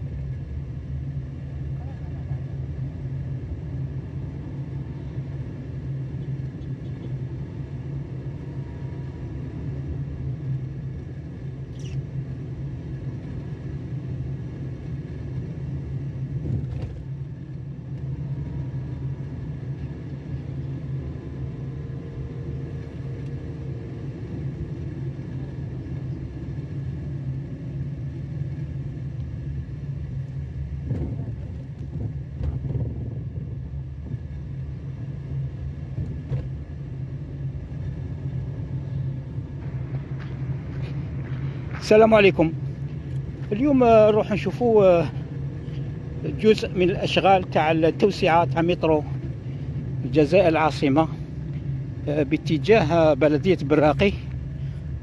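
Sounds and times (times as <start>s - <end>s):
constant low hum: 0.0s - 55.0s
steady low rumble: 0.0s - 55.0s.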